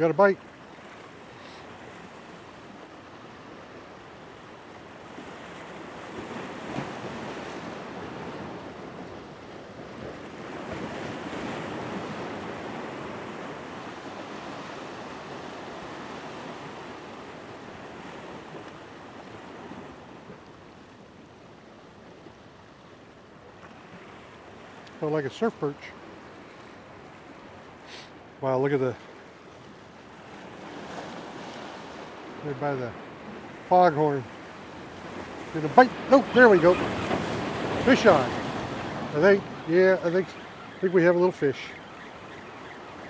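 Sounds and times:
surf breaking against rocks: 30.3s - 41.8s.

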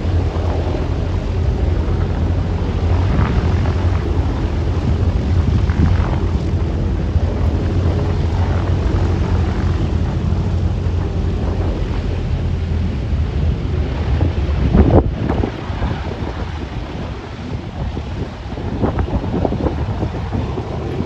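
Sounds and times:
radial aircraft engines droning: 0.0s - 21.0s.

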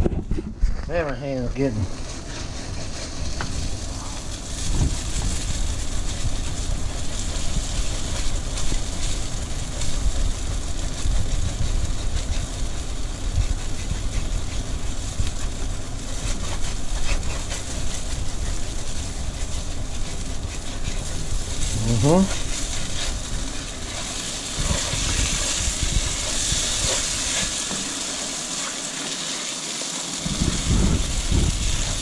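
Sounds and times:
steady low rumble: 0.0s - 27.7s, 30.2s - 32.0s.

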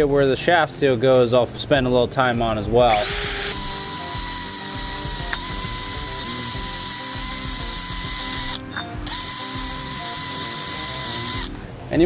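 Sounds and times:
drill motor whine: 2.9s - 11.6s.

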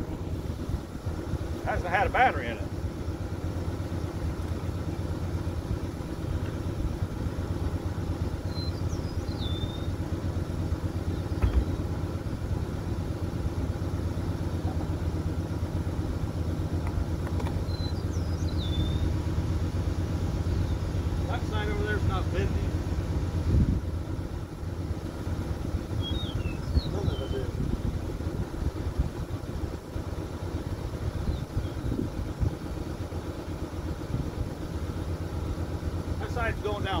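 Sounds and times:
car engine idling: 0.0s - 37.0s
convertible top thump: 11.3s - 11.8s.

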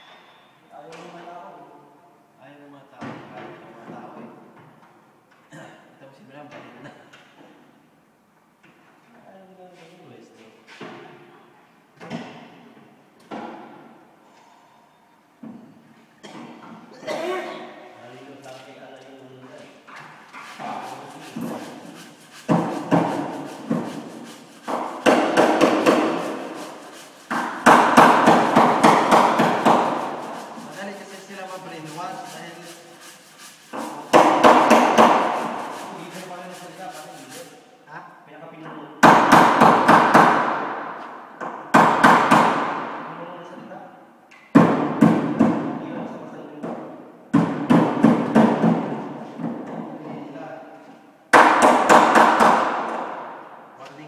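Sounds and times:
hammer on sheet metal: 20.6s - 32.0s, 33.7s - 37.0s, 39.0s - 43.2s, 44.6s - 45.8s, 51.3s - 53.4s.

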